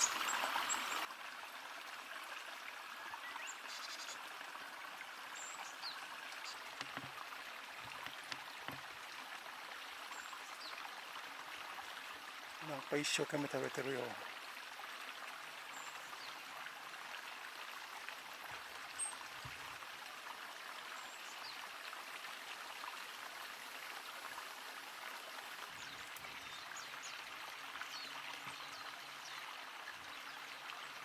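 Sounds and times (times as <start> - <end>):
stream rushing: 0.0 - 2.6.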